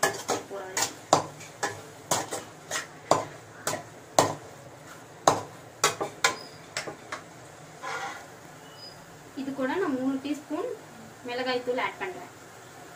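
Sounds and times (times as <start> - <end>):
metal spatula scraping a pan: 0.0 - 3.9, 7.8 - 9.0.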